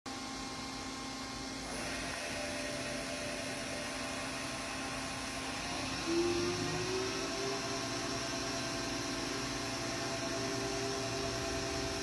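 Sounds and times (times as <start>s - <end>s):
machining center whirring: 0.1s - 12.0s
high whine: 1.8s - 12.0s.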